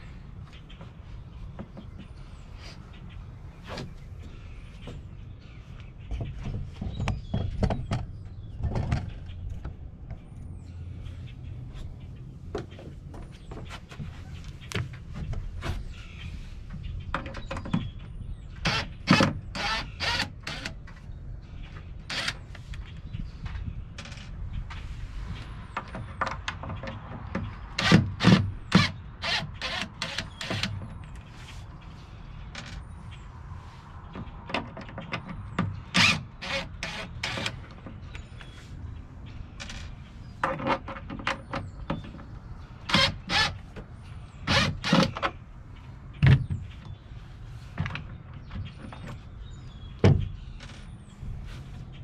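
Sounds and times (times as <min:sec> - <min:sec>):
sharp clicks and knocks: 0:05.8 - 0:10.4, 0:22.1 - 0:31.3, 0:34.1 - 0:38.6, 0:39.5 - 0:43.9.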